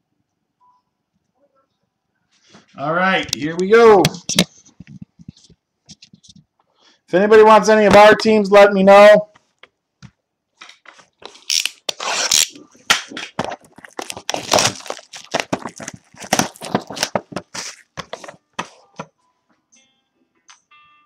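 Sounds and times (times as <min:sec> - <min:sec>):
wrapping tearing and crinkling: 0:11.3 - 0:18.4.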